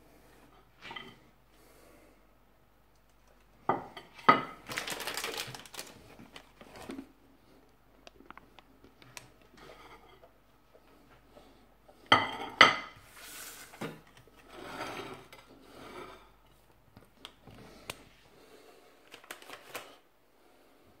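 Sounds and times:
plate scraping and tapping: 13.8s - 16.4s.

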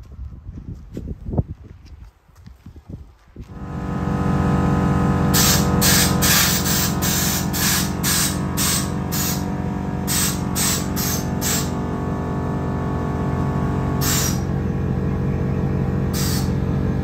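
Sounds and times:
short hissing bursts: 5.4s - 9.4s, 10.1s - 11.7s, 14.0s - 14.4s, 16.2s - 16.6s.

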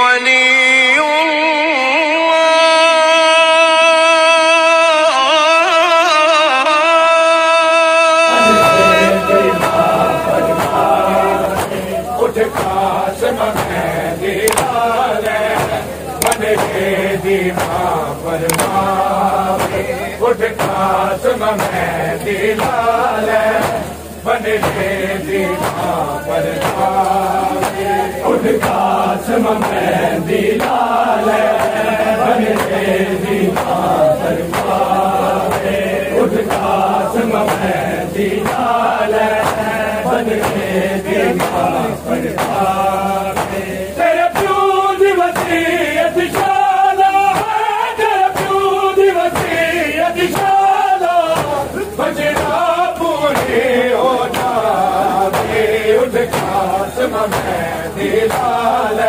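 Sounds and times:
men chanting in unison: 0.0s - 59.0s
chest-beating slaps: 14.5s - 16.8s, 18.5s - 18.9s.

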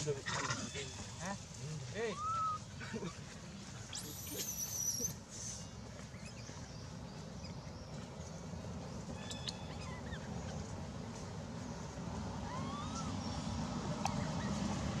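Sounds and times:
low outdoor rumble: 0.0s - 15.0s
high-pitched animal calls: 2.0s - 2.7s, 9.2s - 10.7s, 12.4s - 13.2s.

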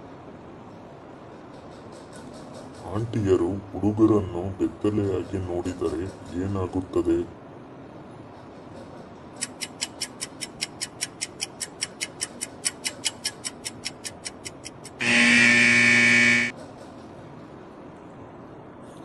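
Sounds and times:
countdown clock ticking: 9.4s - 15.4s
loud buzzer: 14.9s - 16.5s.

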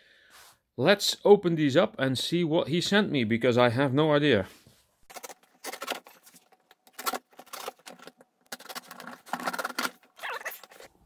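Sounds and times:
tape scraping and tearing: 5.1s - 11.0s.

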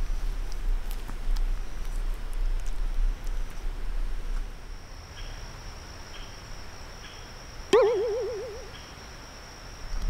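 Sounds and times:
insects chirring: 4.4s - 10.0s
loud wavering tone: 7.7s - 8.9s.

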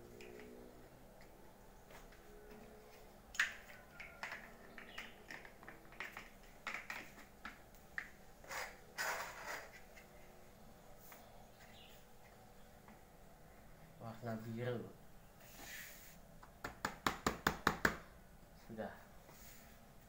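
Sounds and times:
plastic bricks clicking: 3.4s - 8.1s
plastic bricks scraping clatter: 8.5s - 9.9s.

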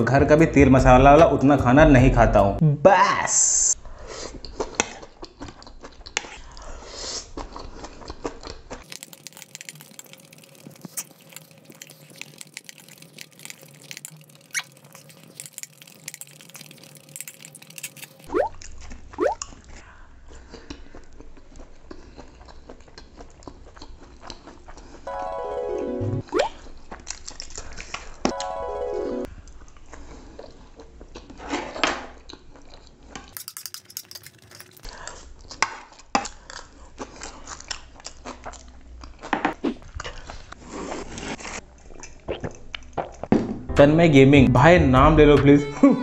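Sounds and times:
chewing and slurping noodles: 4.0s - 25.1s, 29.5s - 31.6s, 32.2s - 43.3s.

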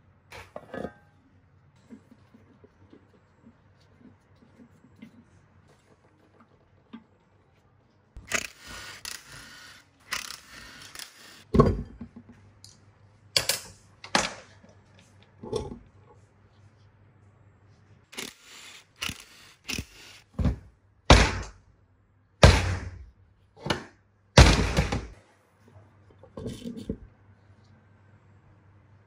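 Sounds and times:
metal scraping and sliding: 0.3s - 1.2s
impact driver bursts: 18.2s - 20.2s.

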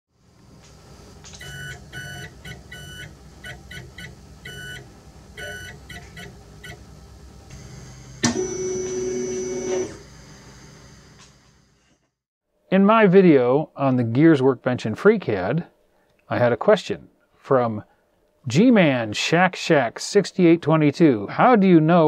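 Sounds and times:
loud held electronic tone: 5.4s - 6.8s, 7.5s - 11.1s.

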